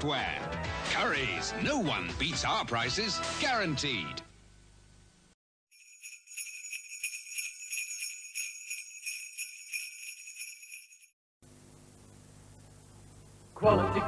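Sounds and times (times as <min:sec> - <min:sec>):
sleigh bells jingling: 0:05.7 - 0:11.2.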